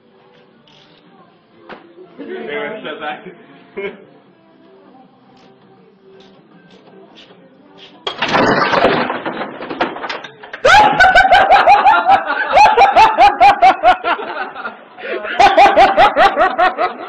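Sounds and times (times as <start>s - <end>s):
person laughing hard: 10.6s - 17.0s.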